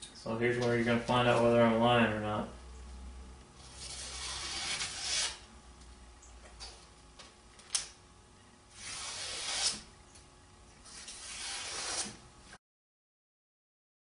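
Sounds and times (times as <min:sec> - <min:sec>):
knife slicing paper: 0:03.7 - 0:05.4, 0:08.8 - 0:09.9, 0:10.9 - 0:12.2.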